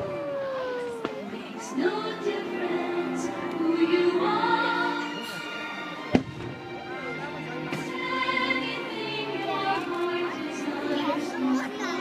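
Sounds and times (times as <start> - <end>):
firework bang: 0.8 - 1.3, 6.1 - 6.6.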